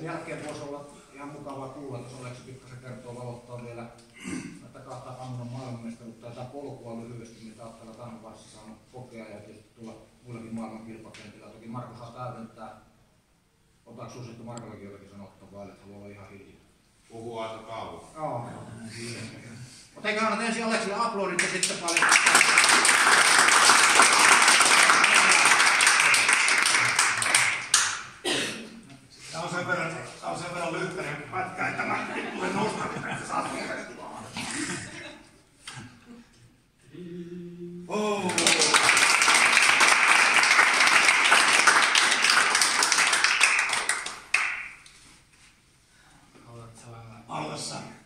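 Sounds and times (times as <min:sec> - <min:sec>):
people clapping: 0:21.3 - 0:28.2, 0:38.1 - 0:45.1.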